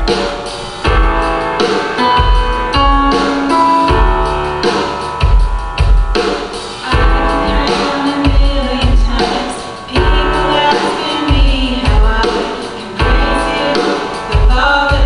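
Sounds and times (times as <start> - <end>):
accompaniment music with drum beat: 0.0 - 15.0
boy singing: 6.8 - 15.0
woman singing: 6.8 - 15.0.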